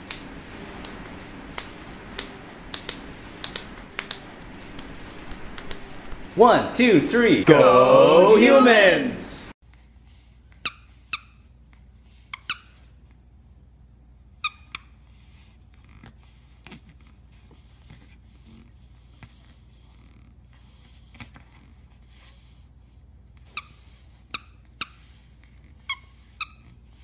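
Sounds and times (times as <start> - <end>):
squeaky toy squeaking: 14.4 - 14.9.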